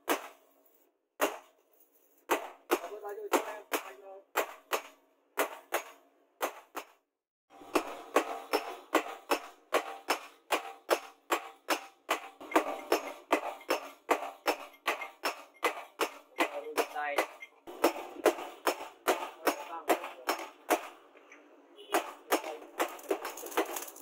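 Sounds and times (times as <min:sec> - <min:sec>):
hammer striking metal on anvil: 0:02.3 - 0:06.9, 0:07.6 - 0:21.0.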